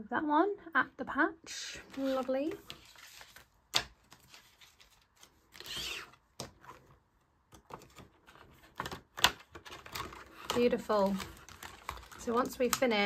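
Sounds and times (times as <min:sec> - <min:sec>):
paper rustling scrape: 0:01.8 - 0:03.5, 0:04.1 - 0:06.9
plastic binder clicks and taps: 0:03.7 - 0:04.2, 0:08.7 - 0:13.0.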